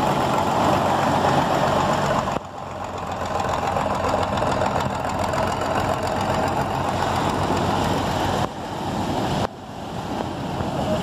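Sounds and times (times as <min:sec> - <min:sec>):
boat diesel engine chugging: 0:00.0 - 0:09.2
sea noise: 0:00.0 - 0:11.0.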